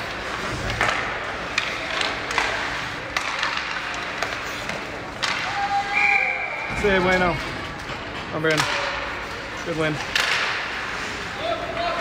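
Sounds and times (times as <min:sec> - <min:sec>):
skate blades scraping ice: 0:00.0 - 0:05.9, 0:09.1 - 0:12.0
hockey sticks and puck clacking: 0:00.0 - 0:12.0
rink background noise: 0:00.0 - 0:12.0.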